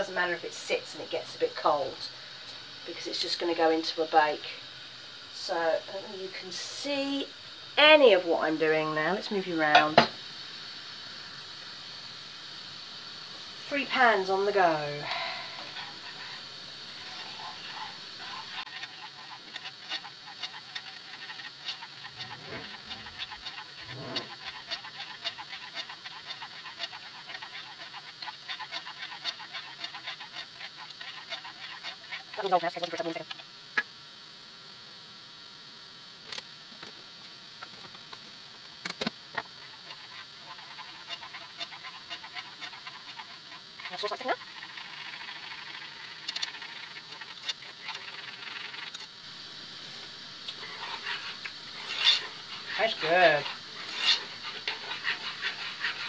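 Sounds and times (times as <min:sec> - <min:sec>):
pans hissing and bubbling: 0:00.0 - 0:56.0
spoon scraping a saucepan: 0:17.0 - 0:32.4, 0:50.5 - 0:56.0.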